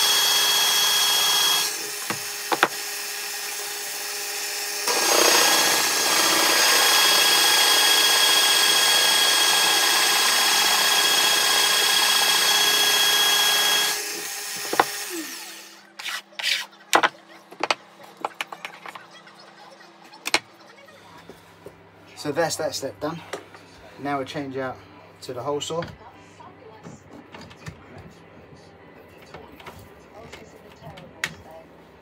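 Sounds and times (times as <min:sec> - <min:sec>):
drill boring into wood: 0:00.0 - 0:15.8
drill motor whine: 0:00.0 - 0:15.8.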